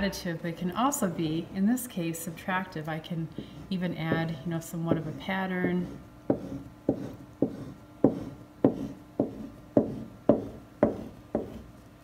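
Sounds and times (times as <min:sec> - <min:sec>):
pencil tapping on painting surface: 0:04.9 - 0:11.6.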